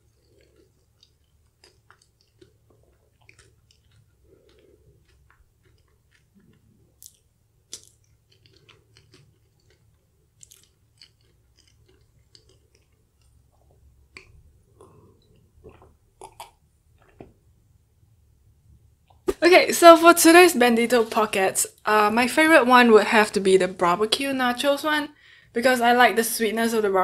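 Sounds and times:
wet mouth clicks: 0.0s - 17.3s
swallowing: 0.0s - 17.4s
close-miked chewing: 0.0s - 17.5s.

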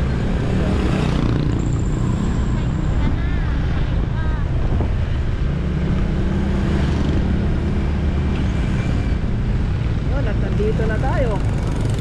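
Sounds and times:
road noise rumble: 0.0s - 12.0s
scooter engine running: 10.4s - 12.0s.

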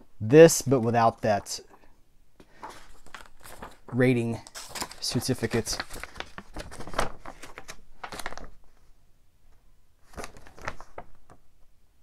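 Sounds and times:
paper crinkling: 2.5s - 8.8s, 10.0s - 11.4s.

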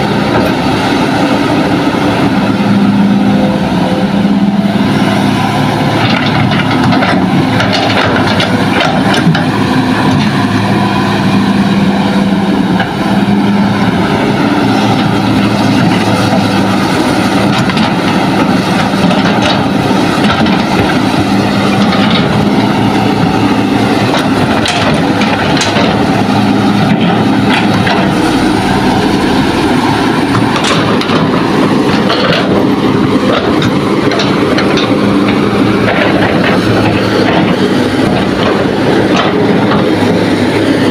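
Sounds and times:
excavator engine drone: 0.0s - 40.9s
hydraulic whine: 0.0s - 40.9s.

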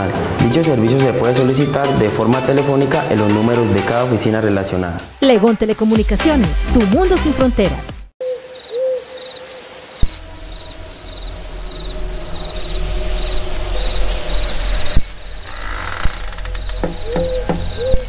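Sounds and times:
hoot-like call: 8.2s - 9.7s
crickets chirping: 8.2s - 18.0s.

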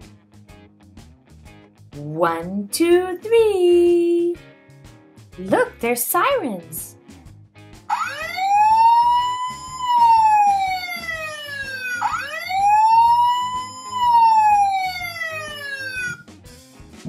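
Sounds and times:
toy police siren wailing: 7.9s - 16.2s.

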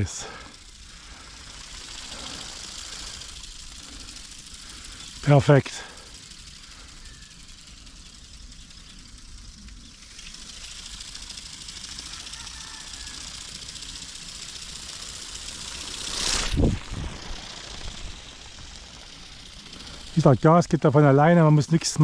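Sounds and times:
toy ornithopter fast buzz: 0.0s - 22.0s
loud whoosh: 16.1s - 18.7s
wind rumble on microphone: 16.4s - 18.2s.

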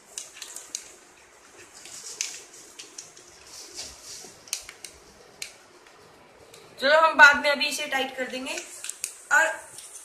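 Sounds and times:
sharp plastic ticks: 0.0s - 3.5s
plastic tubing clicks and rustles: 0.0s - 6.7s.

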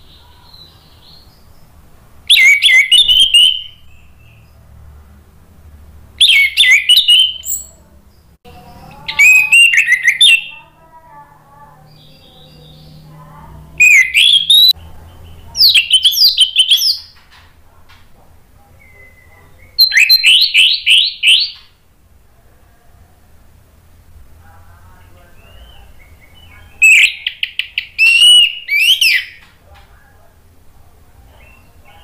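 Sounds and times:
thrush singing: 0.0s - 17.2s.

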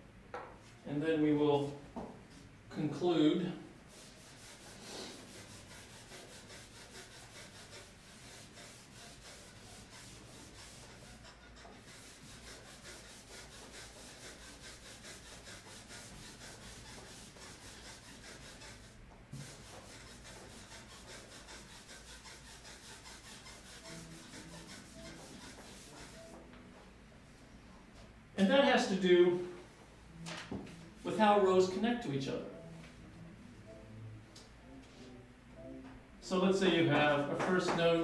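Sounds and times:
eraser scrubbing chalkboard: 3.9s - 26.4s.

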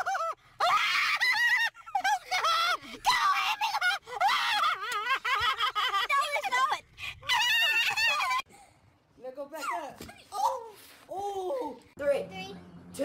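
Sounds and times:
woman screaming: 0.0s - 5.0s, 7.2s - 8.4s.

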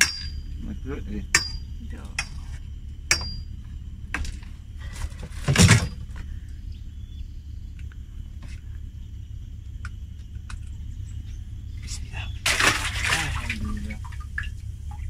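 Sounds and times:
sharp metallic clinks: 1.2s - 2.5s, 3.1s - 3.6s.

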